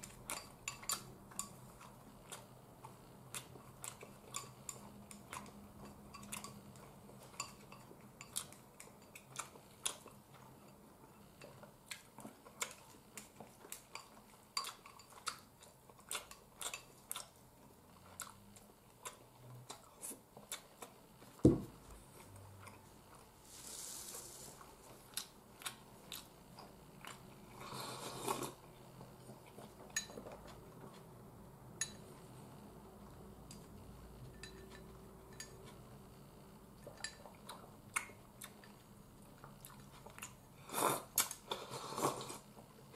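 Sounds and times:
person chewing: 0:00.0 - 0:10.7, 0:11.4 - 0:23.3, 0:24.2 - 0:31.1, 0:36.8 - 0:42.6
short hissing noises: 0:23.4 - 0:24.6.

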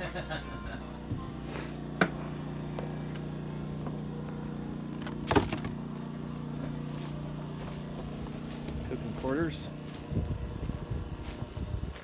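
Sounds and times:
engine humming: 0:00.0 - 0:12.0.

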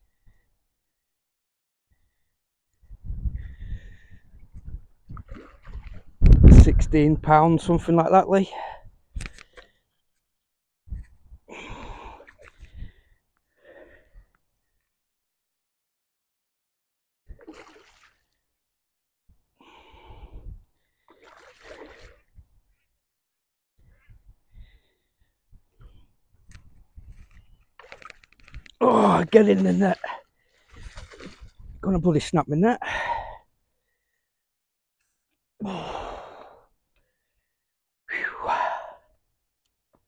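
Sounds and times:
person breathing hard and gasping: 0:11.5 - 0:14.3, 0:32.8 - 0:33.5, 0:35.6 - 0:36.7, 0:38.1 - 0:39.2
strained voiced exclamation: 0:28.8 - 0:30.2, 0:31.8 - 0:32.8
man sighing heavily: 0:35.6 - 0:36.6.

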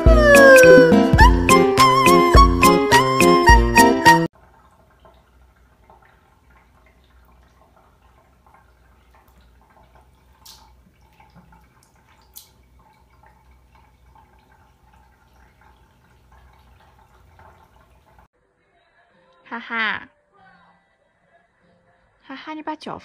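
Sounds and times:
water trickling: 0:04.3 - 0:18.3.

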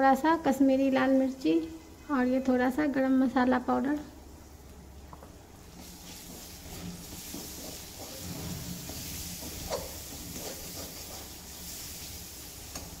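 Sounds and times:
paste sizzling in oil: 0:05.7 - 0:13.0
spatula scraping pan: 0:06.0 - 0:13.0.

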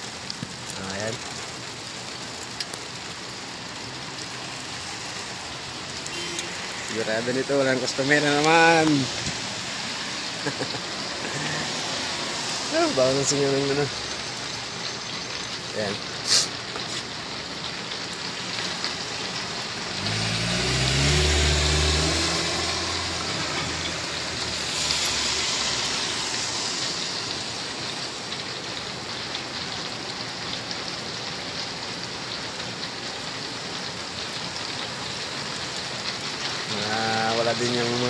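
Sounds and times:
rain falling on wet road: 0:00.0 - 0:38.0
tyres hissing on wet pavement: 0:00.0 - 0:38.0
vehicle driving past: 0:20.0 - 0:27.2.

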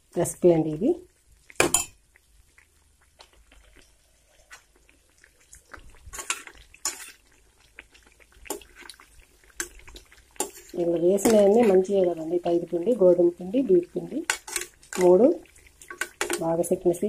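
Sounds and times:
eggs deep-frying in oil: 0:00.0 - 0:17.0.

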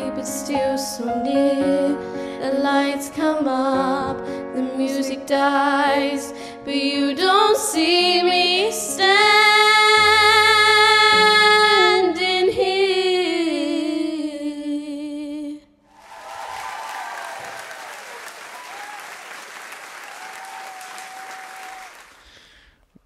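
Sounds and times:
girls singing pop ballad: 0:00.0 - 0:15.6.

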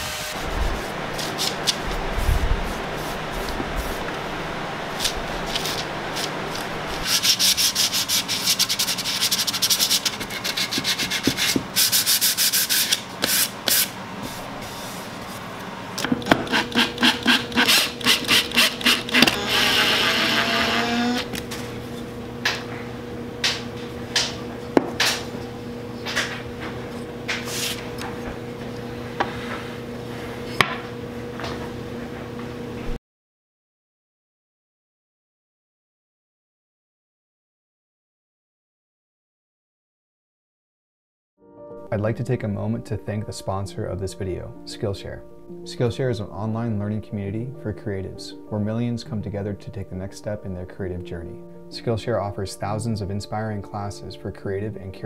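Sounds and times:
pad rubbing on wooden box: 0:07.0 - 0:15.2, 0:16.3 - 0:19.1
cordless drill driving screws: 0:16.4 - 0:21.3.

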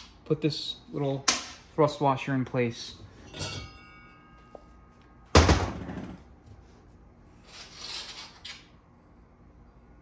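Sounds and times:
metallic scraping rustle: 0:07.4 - 0:08.8.

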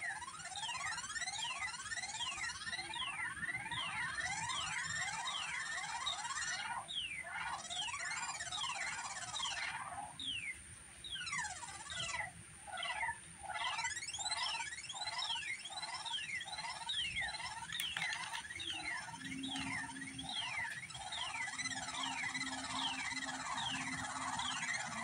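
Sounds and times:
short pulsing electronic tones: 0:00.0 - 0:06.7, 0:13.7 - 0:25.0
electronic pitch sweep chirps: 0:00.0 - 0:06.8, 0:13.7 - 0:25.0.

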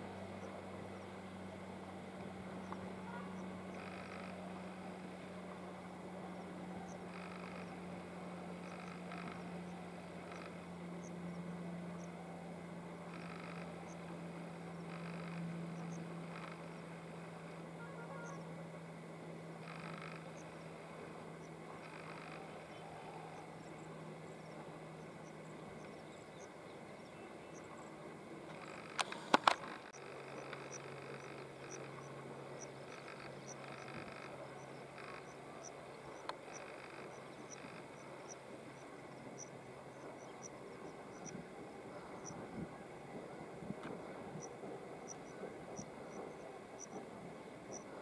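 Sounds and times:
distant diesel engine hum: 0:00.0 - 0:48.0
short animal calls: 0:02.9 - 0:04.8, 0:06.7 - 0:07.8, 0:08.6 - 0:09.6, 0:13.1 - 0:14.0, 0:14.8 - 0:16.8, 0:17.8 - 0:18.4, 0:19.6 - 0:20.6, 0:21.7 - 0:23.8.

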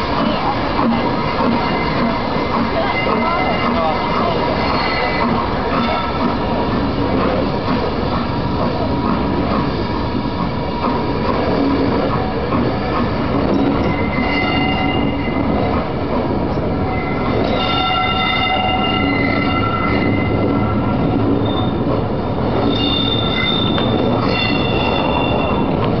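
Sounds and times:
train wheels rumbling on track: 0:00.0 - 0:26.0
high thin wheel squeals: 0:13.6 - 0:15.5, 0:16.9 - 0:21.8, 0:22.6 - 0:25.8.

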